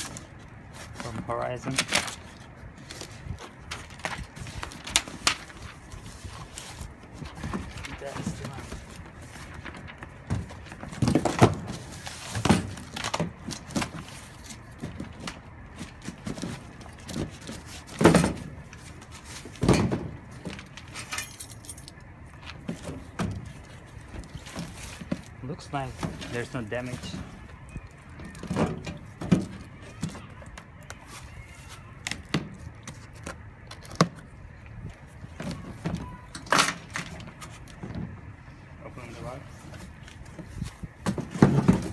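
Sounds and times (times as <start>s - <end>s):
cardboard rustling: 22.4s - 34.4s.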